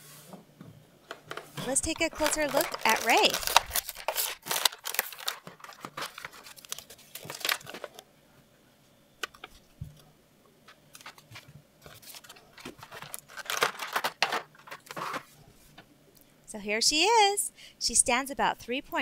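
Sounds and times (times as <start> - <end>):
plastic blister pack crinkling: 1.1 - 8.0, 10.7 - 15.3
cardboard tearing: 1.6 - 8.0, 11.0 - 15.3.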